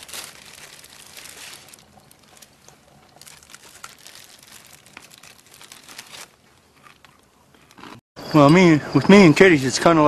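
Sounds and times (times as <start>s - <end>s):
bag of dry cat food crinkling: 0.0s - 6.4s.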